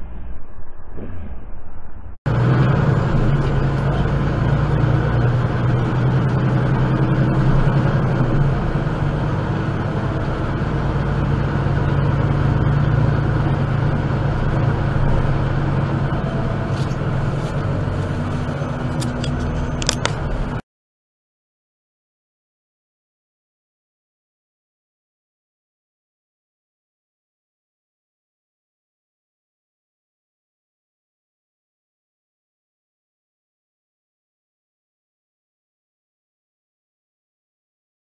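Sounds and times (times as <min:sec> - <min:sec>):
vehicle engine hum and road noise: 0:00.0 - 0:20.6.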